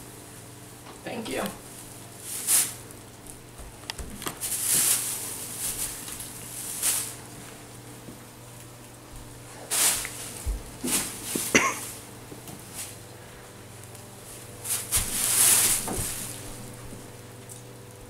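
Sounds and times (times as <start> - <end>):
plastic bag and tinsel rustling: 1.6 - 3.0, 4.2 - 7.6, 9.5 - 13.0, 14.2 - 17.1.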